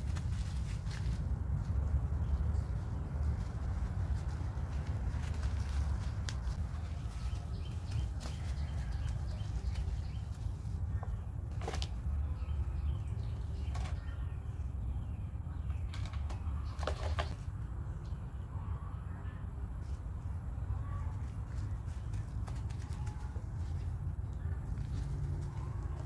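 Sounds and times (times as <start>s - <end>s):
steady low rumble: 0.0s - 16.8s, 17.4s - 26.0s.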